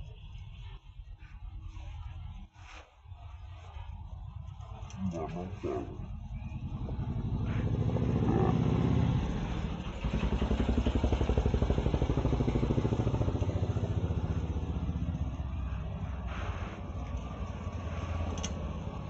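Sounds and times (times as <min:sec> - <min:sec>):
small engine puttering: 0:06.5 - 0:15.2.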